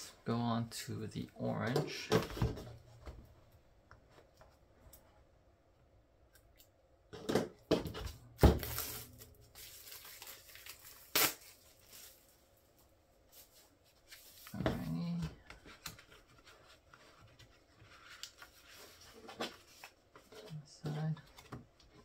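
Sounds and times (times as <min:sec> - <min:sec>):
plastic wrap tearing and crinkling: 0:08.4 - 0:12.4
box cutter slitting plastic wrap: 0:11.0 - 0:11.6.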